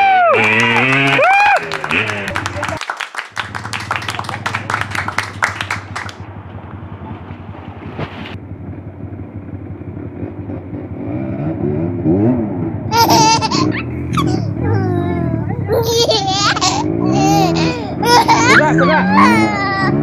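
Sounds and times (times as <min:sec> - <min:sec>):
people shouting: 0:00.0 - 0:02.7
dirt bike engine revving: 0:00.1 - 0:02.8, 0:08.6 - 0:20.0
people laughing: 0:00.3 - 0:06.1, 0:12.9 - 0:20.0.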